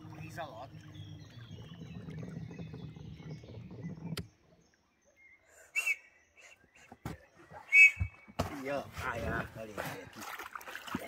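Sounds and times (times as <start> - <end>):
small boat engine rumbling: 0.0 - 6.0
birds singing faintly: 0.0 - 11.0.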